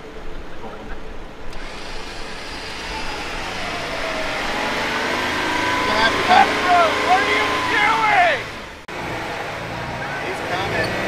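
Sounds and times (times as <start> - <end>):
motor whine: 1.5 - 8.8.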